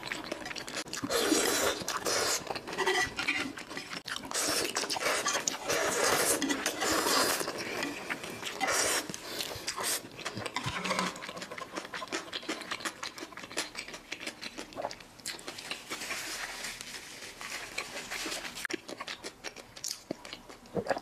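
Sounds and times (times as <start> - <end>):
chewing with wet mouth clicks: 0.0 - 5.8, 7.4 - 16.0, 18.7 - 21.0
noodle slurp: 4.3 - 12.9.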